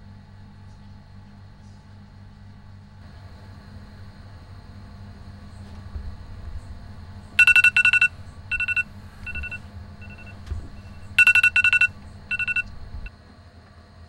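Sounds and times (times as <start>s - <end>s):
phone alarm electronic pips: 7.4s - 13.1s.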